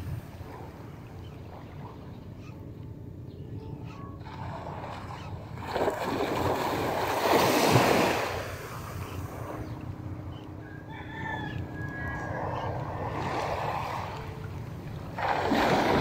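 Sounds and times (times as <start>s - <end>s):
wind and water rushing: 0.0s - 2.5s, 4.2s - 16.0s
distant rooster crowing: 10.5s - 13.3s.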